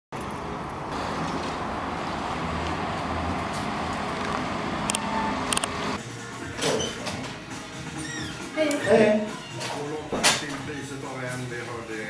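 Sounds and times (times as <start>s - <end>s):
road traffic noise: 0.1s - 8.5s.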